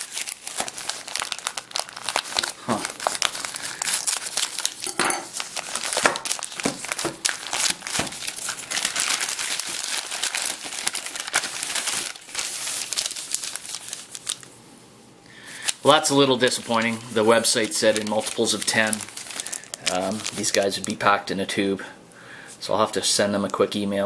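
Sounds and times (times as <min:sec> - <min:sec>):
paper and tape crinkling: 0:00.0 - 0:14.5, 0:15.5 - 0:21.1.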